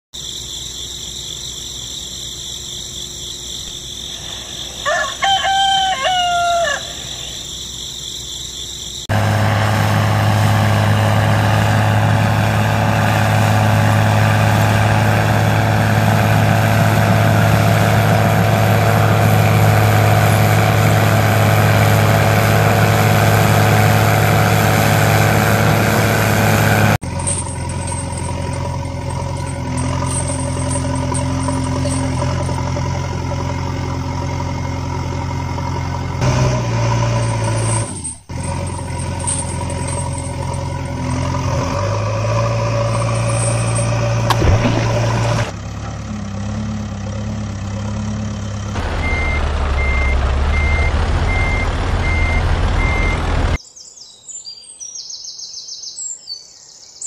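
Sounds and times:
rooster crowing: 4.5 - 7.5
truck engine idling: 6.3 - 53.6
high-pitched hum: 42.7 - 45.5.

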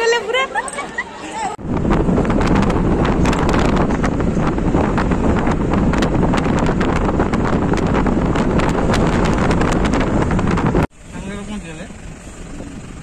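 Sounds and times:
wind buffeting microphone: 1.6 - 10.9.

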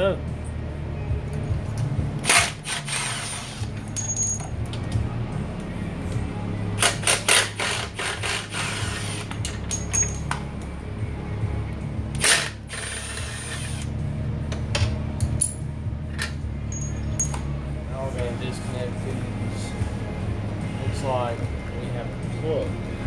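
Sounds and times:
background music: 0.0 - 23.0
metal tools clinking and knocking: 3.8 - 4.6, 9.4 - 10.4, 14.8 - 17.4.

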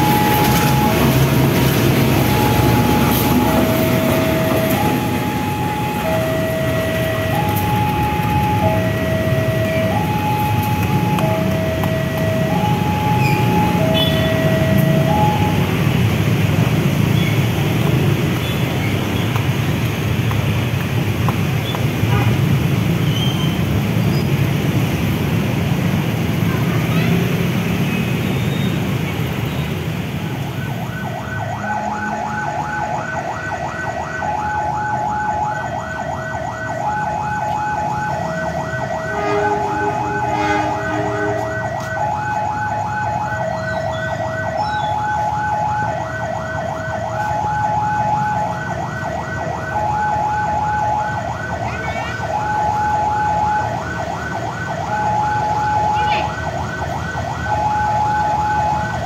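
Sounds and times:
level crossing two-note alarm: 0.0 - 15.7, 36.9 - 45.8
diesel locomotive engine: 0.0 - 59.0.

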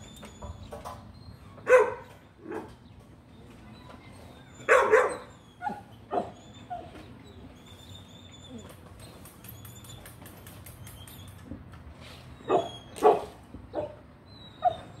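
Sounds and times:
dog barking: 1.7 - 2.7, 4.7 - 6.4, 12.5 - 14.0.

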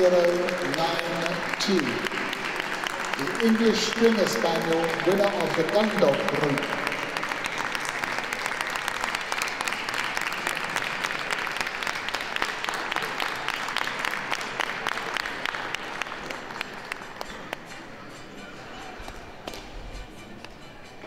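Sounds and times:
audience applauding: 0.0 - 17.8.

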